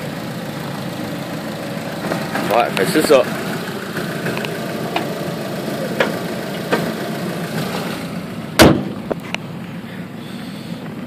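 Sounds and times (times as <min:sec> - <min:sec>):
car engine idling: 0:00.0 - 0:11.0
car hood slamming: 0:08.5 - 0:09.2.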